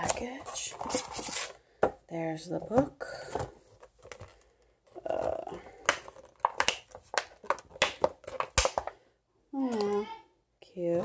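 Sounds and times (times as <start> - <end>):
plastic blister pack crinkling: 3.2 - 9.0.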